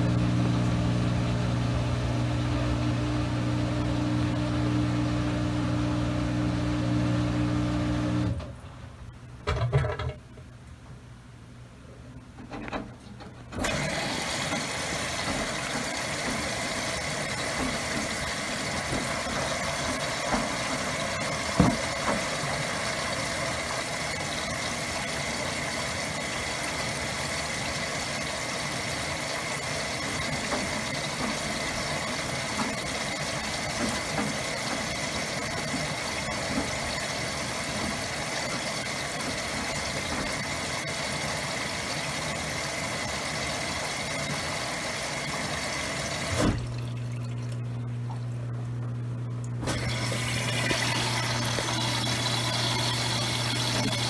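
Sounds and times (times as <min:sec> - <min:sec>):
washing machine running: 0:00.0 - 0:10.3, 0:12.6 - 0:54.0
loud thump: 0:46.3 - 0:46.8.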